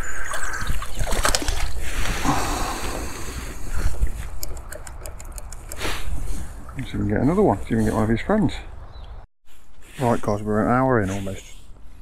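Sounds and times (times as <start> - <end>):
quick clicks: 4.2 - 6.0.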